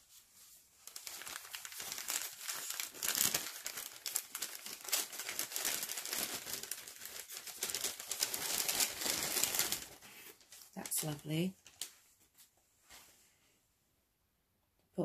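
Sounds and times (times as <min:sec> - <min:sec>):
paper bag crinkling: 0:00.8 - 0:12.0.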